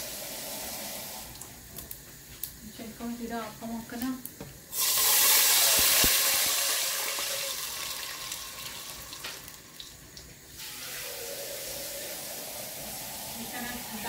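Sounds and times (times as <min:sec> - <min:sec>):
water pouring into hot oil: 0:00.0 - 0:02.0, 0:04.7 - 0:14.0
oil hissing and sizzling: 0:00.0 - 0:14.0.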